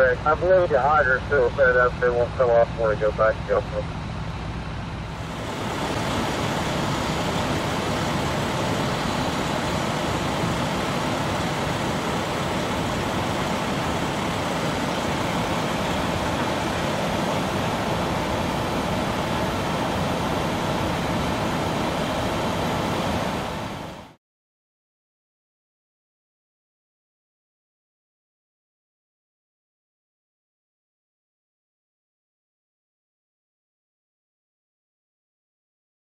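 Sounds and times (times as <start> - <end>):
rush of vehicle noise: 2.8 - 24.2.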